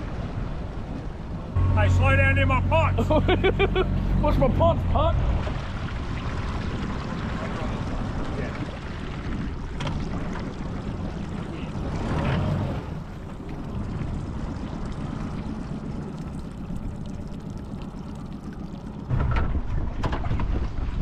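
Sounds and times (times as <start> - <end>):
water splashing and pouring: 4.9 - 21.0.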